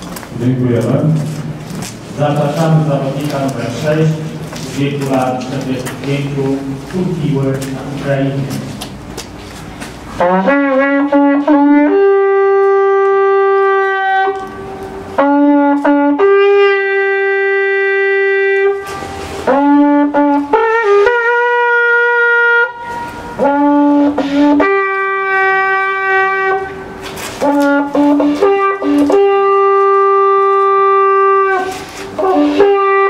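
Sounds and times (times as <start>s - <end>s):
wooden horn calls: 10.1s - 33.0s.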